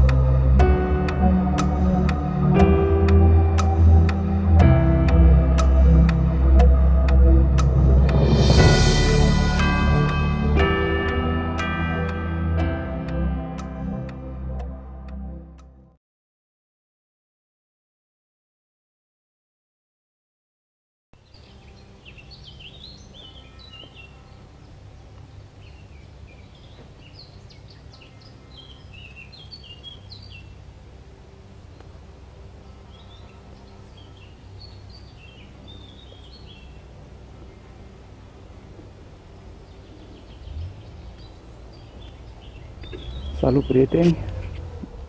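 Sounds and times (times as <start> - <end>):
birds chirping: 21.2 - 45.0.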